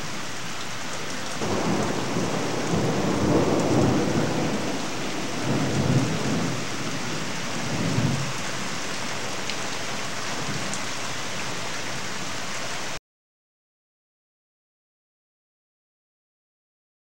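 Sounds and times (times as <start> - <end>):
steady rain: 0.0 - 13.0
thunder rolling: 1.4 - 8.4.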